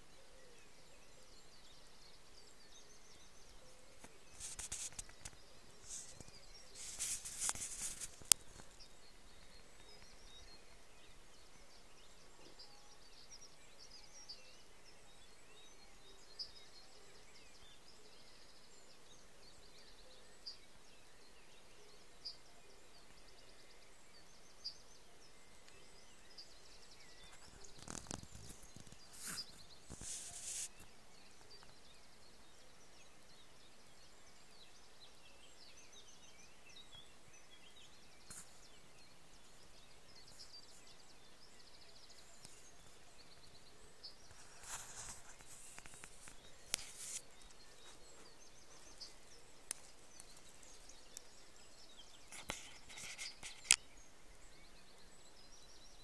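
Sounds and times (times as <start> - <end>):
faint bird chirps: 0.0 - 56.0
rustling: 4.0 - 8.9, 27.2 - 31.7, 44.2 - 51.4.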